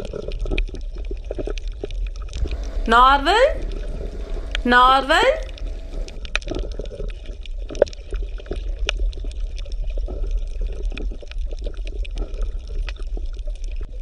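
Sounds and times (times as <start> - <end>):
low hum: 2.4 - 6.6
water bubbling and gurgling: 2.4 - 7.3.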